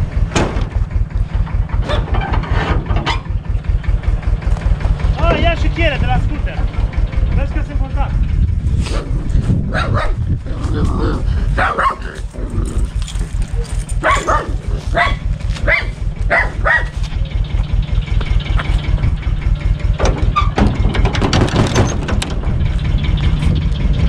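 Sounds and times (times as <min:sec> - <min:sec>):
tractor diesel engine running: 0:00.0 - 0:24.0
dog barking: 0:01.8 - 0:02.1, 0:09.7 - 0:10.2, 0:11.6 - 0:12.2, 0:13.6 - 0:17.0.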